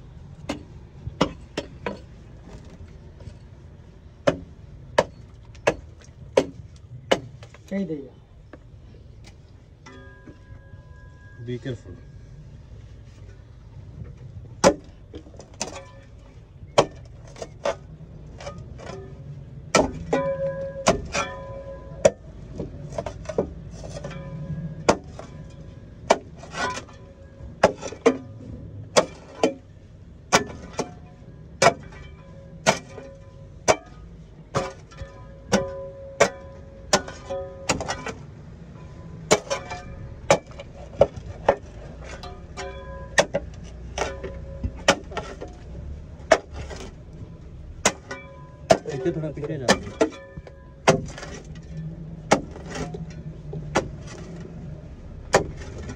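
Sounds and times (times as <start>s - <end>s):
pick mattock chopping debris: 0.4s - 2.8s, 4.2s - 7.6s, 14.6s - 16.0s, 16.7s - 19.0s, 19.7s - 29.7s, 30.3s - 38.3s, 39.2s - 46.9s, 47.8s - 54.5s, 55.3s - 55.9s.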